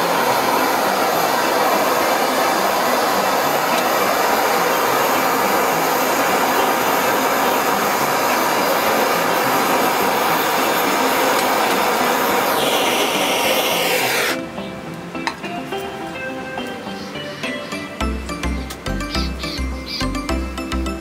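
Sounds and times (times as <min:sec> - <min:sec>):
blowtorch flame hissing: 0:00.0 - 0:14.5.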